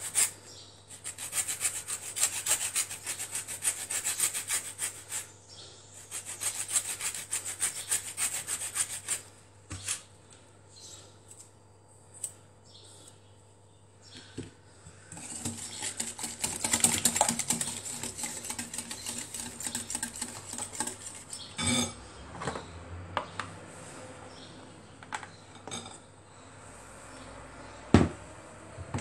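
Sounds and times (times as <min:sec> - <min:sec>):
metal whisk clattering in glass bowl: 0:15.3 - 0:21.9.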